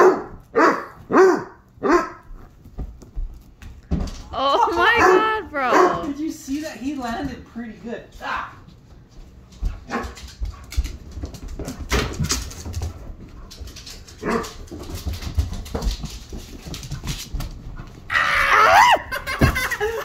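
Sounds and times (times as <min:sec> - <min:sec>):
dog barking: 0:00.0 - 0:02.2, 0:05.0 - 0:06.1, 0:09.9 - 0:10.2, 0:14.2 - 0:14.5.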